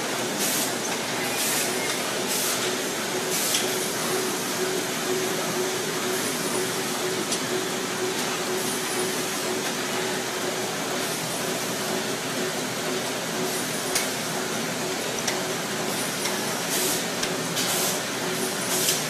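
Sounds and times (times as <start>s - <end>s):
machine running with constant tone: 0.0s - 19.0s
machine hiss: 0.3s - 10.1s, 15.8s - 19.0s.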